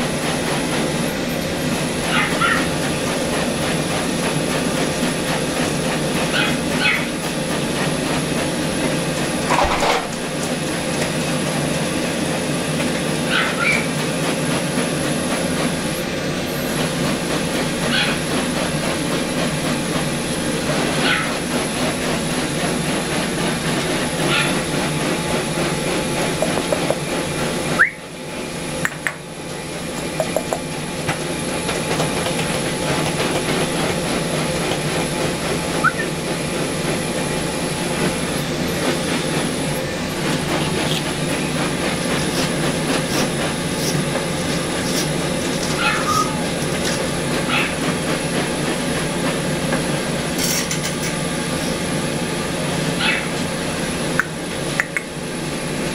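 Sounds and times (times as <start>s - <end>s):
fan motor hum and rush: 0.0s - 55.9s
high-pitched whine: 35.4s - 40.1s.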